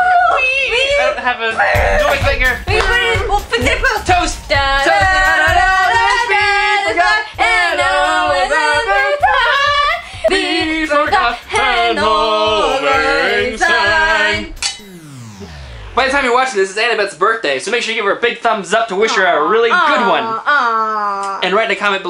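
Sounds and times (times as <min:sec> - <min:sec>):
voices singing: 0:01.6 - 0:16.2
woman singing: 0:01.8 - 0:14.6.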